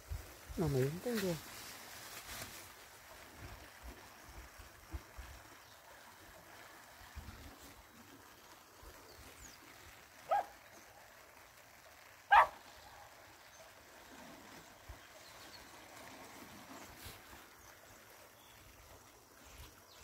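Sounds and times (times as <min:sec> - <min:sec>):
dog barking: 0:10.3 - 0:10.6, 0:12.3 - 0:12.6.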